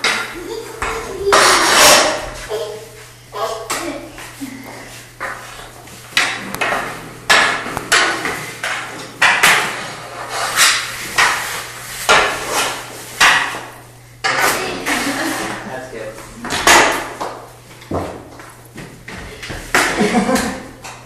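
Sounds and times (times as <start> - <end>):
hockey stick banging on concrete: 0.0 - 2.4, 6.1 - 9.9, 10.5 - 14.7, 16.4 - 21.0.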